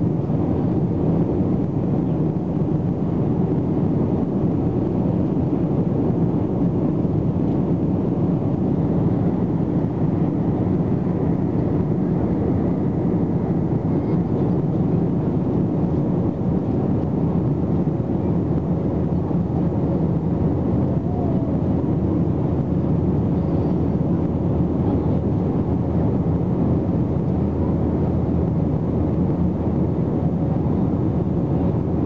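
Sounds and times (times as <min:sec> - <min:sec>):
jet engine roar: 0:00.0 - 0:32.0.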